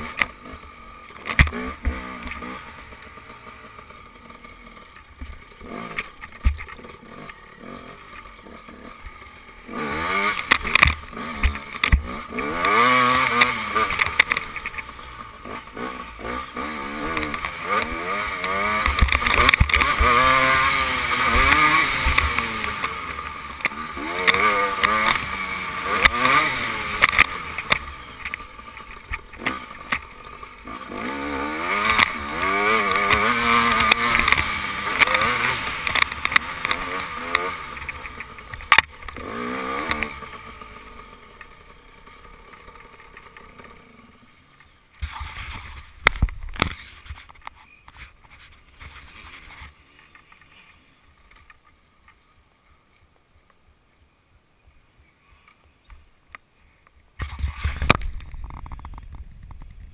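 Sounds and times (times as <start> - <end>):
dirt bike engine revving: 0.0 - 47.1.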